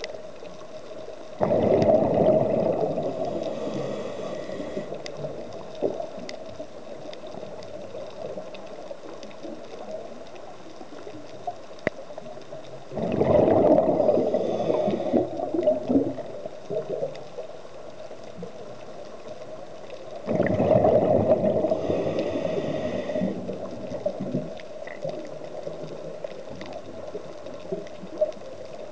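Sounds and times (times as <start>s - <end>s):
regulator bubbles underwater: 0.0s - 28.9s
underwater hiss: 1.3s - 8.6s, 13.0s - 17.4s, 19.2s - 28.8s.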